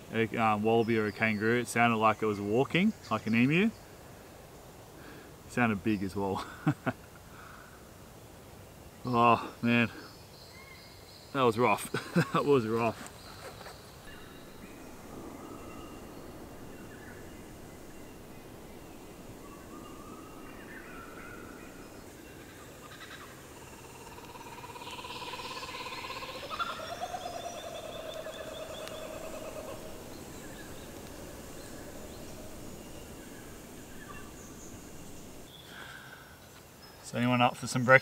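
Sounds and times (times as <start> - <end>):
wild birds calling: 8.9 - 36.6.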